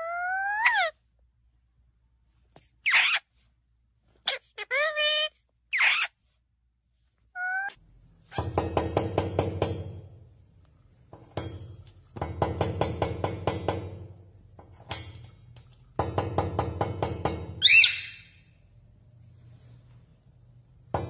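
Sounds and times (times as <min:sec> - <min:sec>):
bird chirp: 0:17.6 - 0:18.5.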